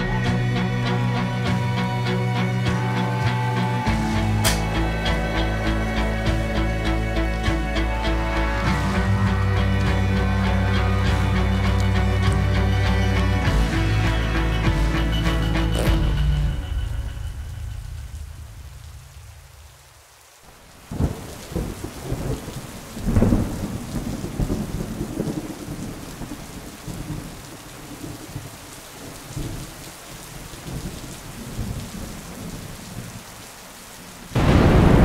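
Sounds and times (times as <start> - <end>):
low drone: 0.0 - 19.6
heavy rain: 0.0 - 35.0
thunder rumbling: 20.6 - 29.8, 34.3 - 35.0.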